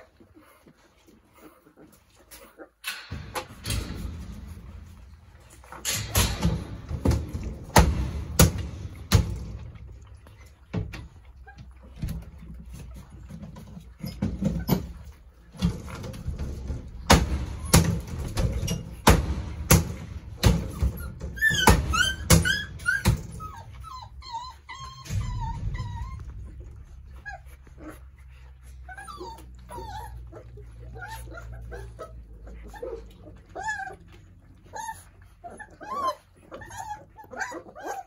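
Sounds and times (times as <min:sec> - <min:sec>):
dogs whimpering and yipping: 0:00.0 - 0:38.0
sharp knocks and clatter: 0:02.8 - 0:23.6.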